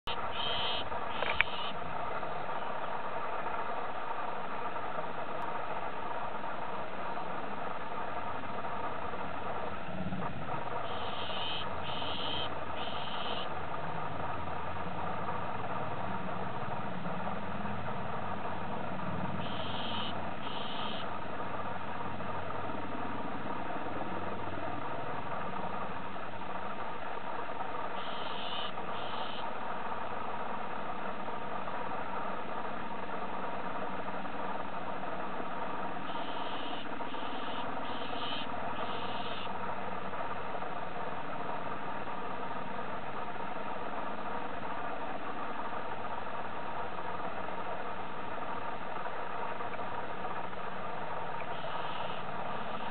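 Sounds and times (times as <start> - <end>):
bird short high calls: 0.1 - 1.8, 10.9 - 13.5, 19.4 - 21.1, 28.0 - 29.4, 36.1 - 39.5, 51.5 - 52.9
steady mechanical drone: 0.1 - 52.9.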